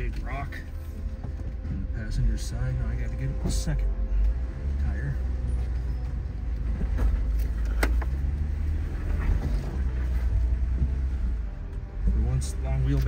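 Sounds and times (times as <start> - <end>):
engine running at low speed: 0.4 - 13.0.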